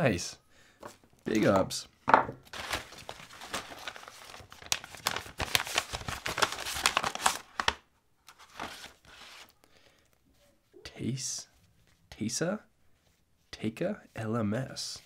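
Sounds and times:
paper mailer handled: 2.4s - 9.5s
paper crumpling and rustling: 2.4s - 9.6s.

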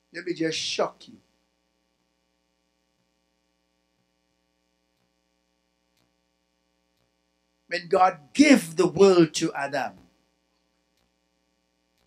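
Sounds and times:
faint electrical hum: 0.0s - 12.0s
faint ticks: 3.9s - 7.3s, 10.0s - 12.0s.

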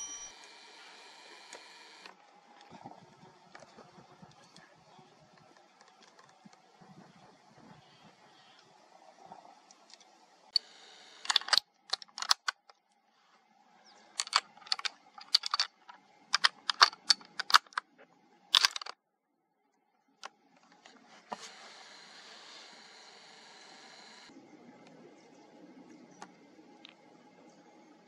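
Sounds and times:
metallic rifle bolt clicks: 11.2s - 12.7s, 14.2s - 17.8s, 18.5s - 19.0s.

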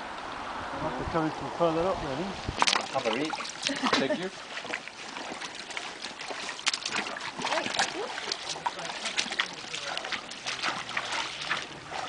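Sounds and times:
running stream: 0.0s - 12.0s
sloshing footsteps in water: 2.5s - 12.0s.

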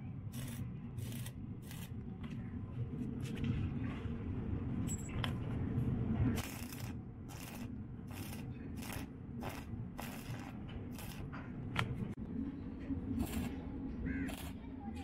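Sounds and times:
welding arc crackling and sizzling: 0.3s - 2.0s, 6.4s - 11.3s, 13.2s - 13.5s, 14.3s - 14.6s.

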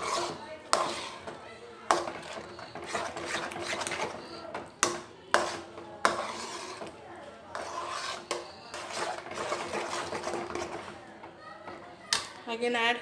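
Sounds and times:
spoon scraping metal pan: 0.0s - 11.4s
spoon knocking pan: 1.9s - 6.9s.

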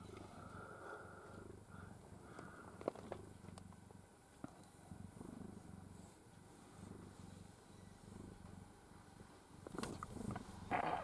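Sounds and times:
cat purring: 0.0s - 11.0s
soft clicks and rustles: 2.3s - 4.8s, 9.6s - 11.0s.

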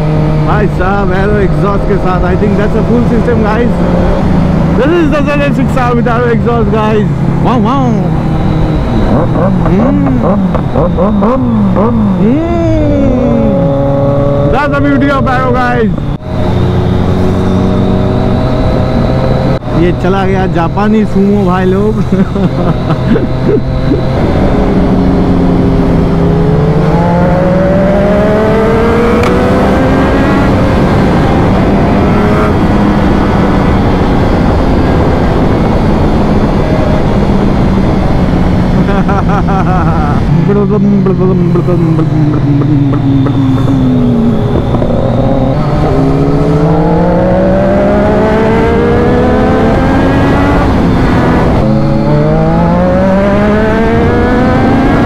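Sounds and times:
motorcycle engine accelerating: 0.0s - 55.0s
wind rush: 20.4s - 55.0s.

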